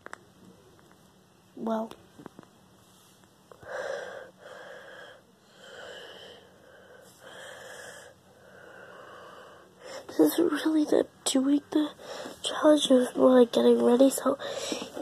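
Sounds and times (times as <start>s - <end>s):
heavy breathing: 3.5s - 10.3s, 11.9s - 12.5s, 14.4s - 15.0s.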